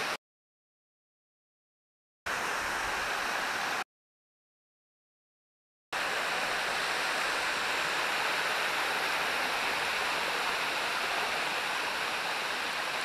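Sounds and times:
stream water rushing: 2.3 - 3.8, 6.0 - 13.0.

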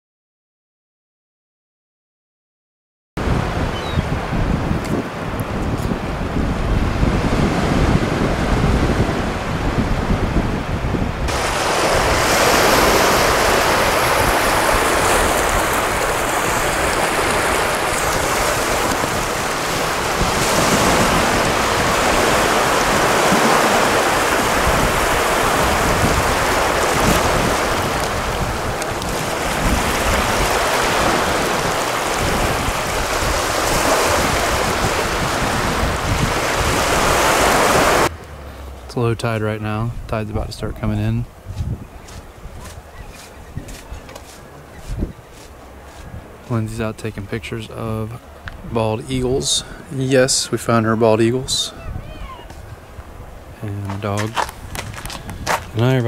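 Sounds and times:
wind buffeting microphone: 3.2 - 38.9, 39.7 - 56.0
ocean surf: 3.2 - 56.0.

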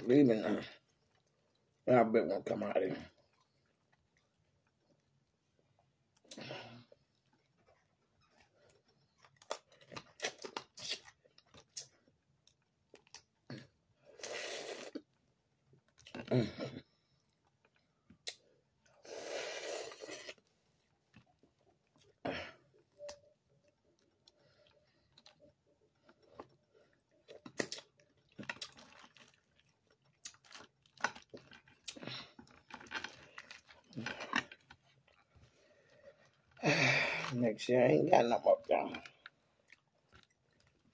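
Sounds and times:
chewing: 0.6 - 1.8, 3.0 - 13.8, 19.9 - 36.6, 38.9 - 40.9.

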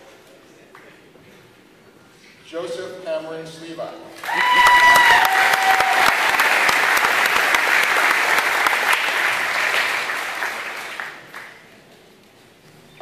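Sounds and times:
audience applauding: 4.2 - 11.8.

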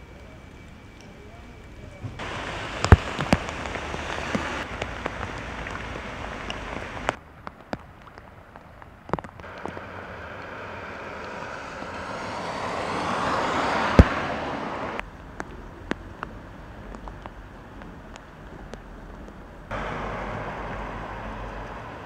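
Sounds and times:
rain drips: 0.0 - 22.0
steady rain hiss: 0.0 - 22.0
tyres hissing on wet road: 2.0 - 7.2, 9.4 - 19.0, 19.6 - 22.0.

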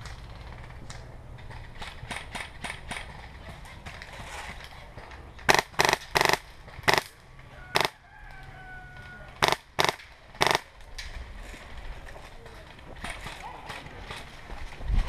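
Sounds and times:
airsoft gun full-auto bursts: 5.5 - 7.2, 9.4 - 10.7.

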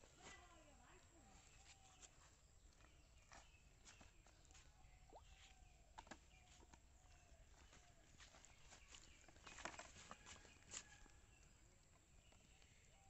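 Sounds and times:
footsteps on dry leaves: 6.4 - 11.1.

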